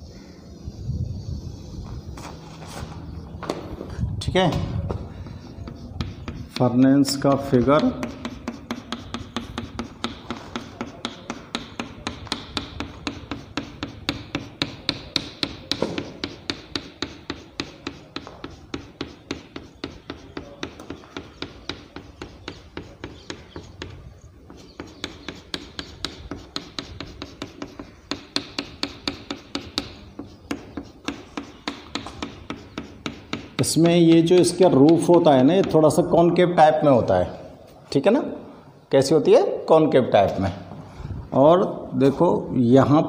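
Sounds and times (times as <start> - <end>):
chalk tapping and scraping on chalkboard: 4.5 - 36.1.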